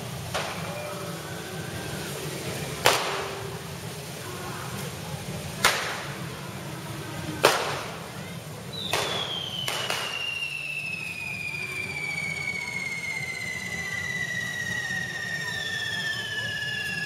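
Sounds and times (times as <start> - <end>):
firecracker bangs: 0.0 - 1.1, 2.2 - 3.9, 5.6 - 6.4, 7.4 - 17.0
fireworks hissing: 0.0 - 17.0.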